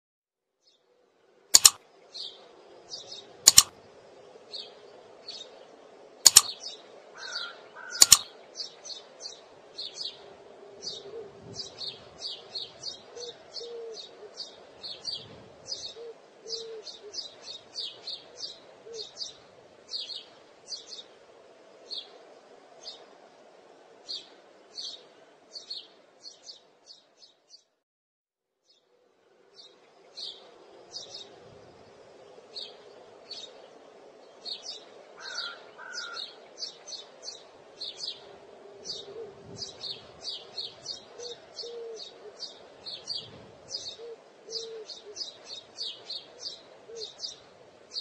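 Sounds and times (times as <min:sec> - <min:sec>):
sharp clicks: 0:01.6 - 0:01.8, 0:03.5 - 0:03.7, 0:06.3 - 0:06.6, 0:08.0 - 0:08.3
birds chirping: 0:01.6 - 0:03.7, 0:06.3 - 0:10.2, 0:32.5 - 0:48.0.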